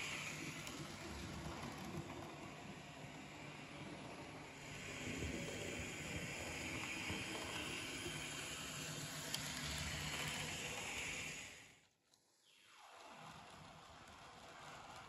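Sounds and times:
model train motor whirring: 0.0s - 11.8s.

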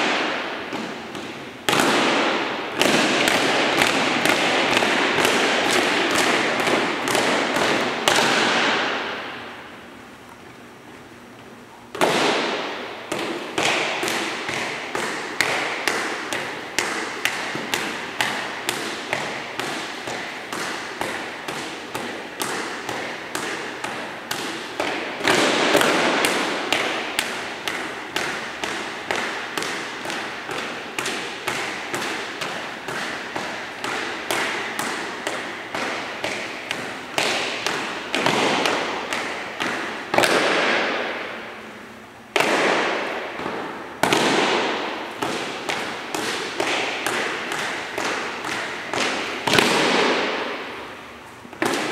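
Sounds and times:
echoing boot stamps: 12.0s - 41.4s.

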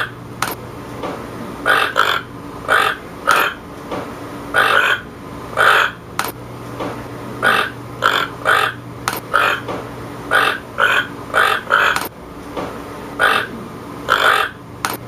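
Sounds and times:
toucan croaking calls: 0.0s - 0.2s, 1.6s - 3.6s, 4.5s - 6.0s, 7.4s - 9.7s, 10.3s - 12.1s, 13.2s - 14.6s
sharp clicks: 0.4s - 0.6s, 6.2s - 6.4s, 9.0s - 9.8s, 11.9s - 12.1s, 14.8s - 15.0s.

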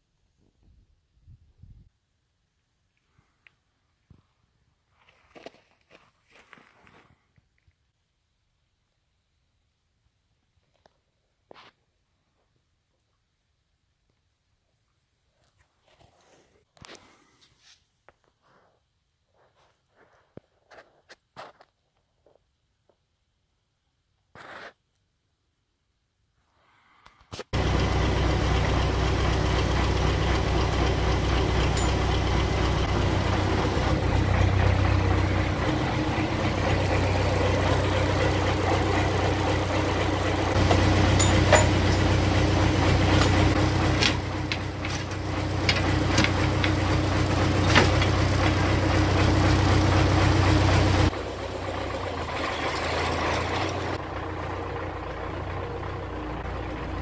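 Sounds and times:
tractor diesel engine idling: 27.6s - 57.0s
sharp metallic clicks and knocks: 40.6s - 42.1s, 43.2s - 46.8s.

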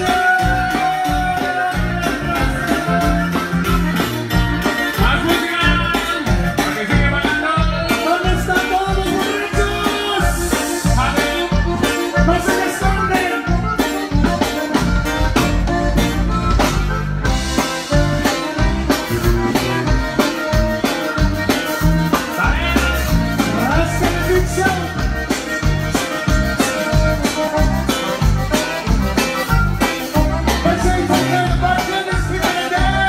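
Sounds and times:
lead vocal singing: 0.0s - 3.6s, 5.0s - 13.4s, 30.6s - 33.0s
accordion: 0.0s - 33.0s
bass: 0.0s - 33.0s
drum kit beat: 0.0s - 33.0s
guitar: 0.0s - 33.0s.

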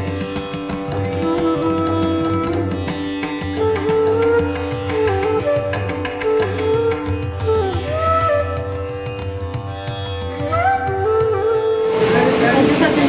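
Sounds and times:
steady drone: 11.8s - 13.0s.

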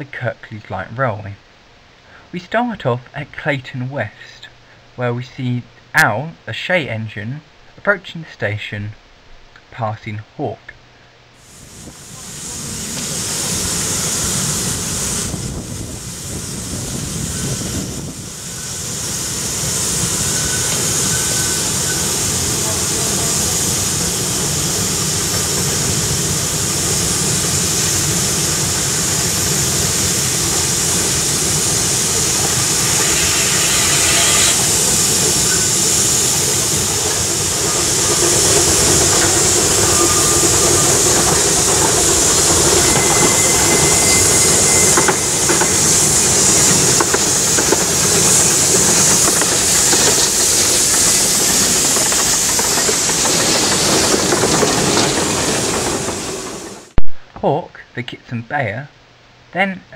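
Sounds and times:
steam hissing: 11.4s - 57.0s.

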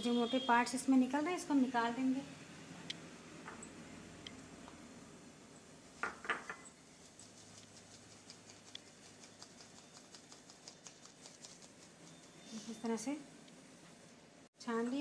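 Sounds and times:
sieve ticking while sifting: 7.2s - 12.4s.

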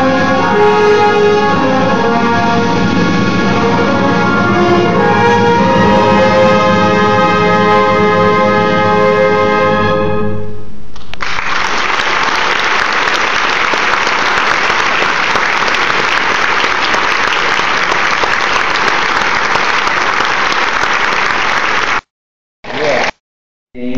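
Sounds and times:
audience applause: 11.2s - 22.1s, 22.7s - 23.2s.

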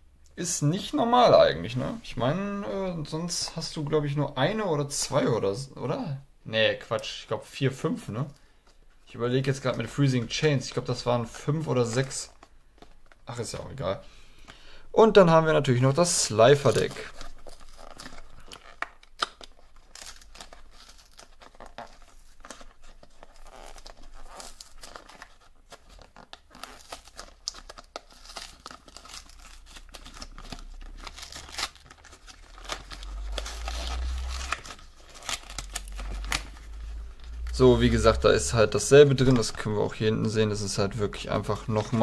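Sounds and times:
plastic shrink wrap tearing: 16.0s - 42.0s.

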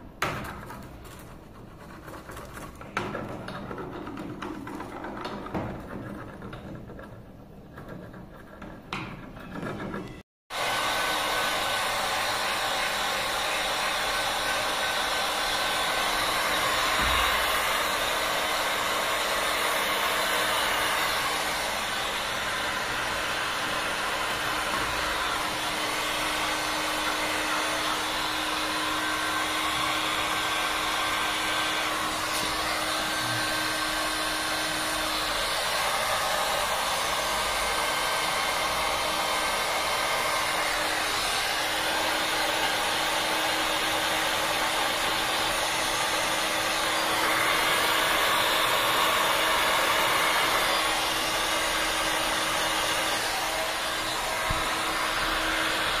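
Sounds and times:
heat gun blowing air: 10.5s - 56.0s.

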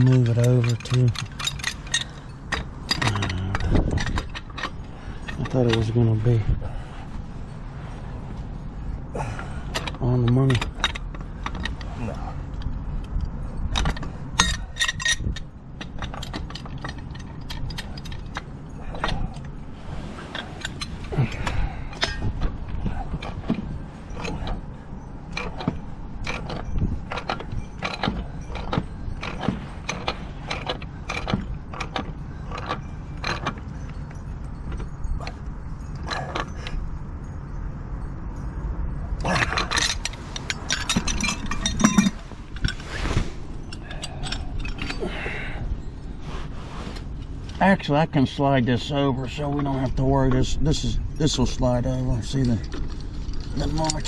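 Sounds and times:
pipe wrench clicking and scraping: 0.0s - 6.4s, 9.6s - 36.9s, 39.2s - 46.2s
sharp metallic clinks: 0.0s - 46.4s, 47.1s - 54.0s.

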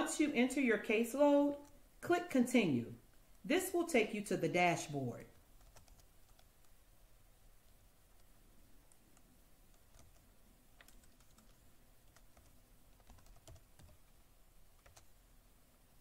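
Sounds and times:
computer keyboard keystrokes: 5.6s - 6.8s, 8.9s - 10.2s, 10.8s - 14.1s, 14.8s - 15.1s.

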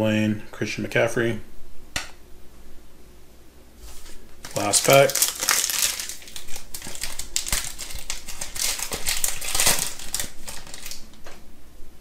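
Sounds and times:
wrapper tearing and crinkling: 3.9s - 11.4s.

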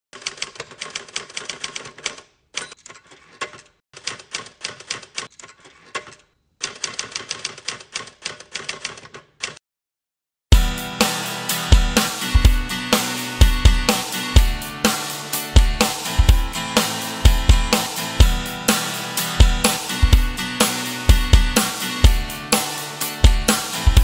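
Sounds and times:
typewriter keys clacking: 0.2s - 9.6s.

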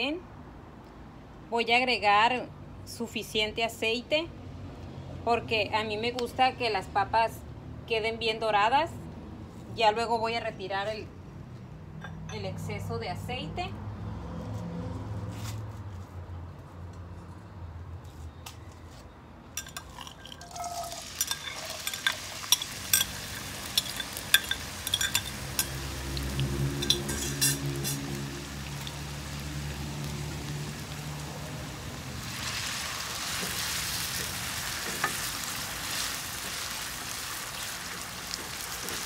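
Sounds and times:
potatoes clicking in a pan: 19.6s - 27.2s
wooden spoon stirring: 19.6s - 27.6s
oil sizzling: 19.6s - 39.0s.

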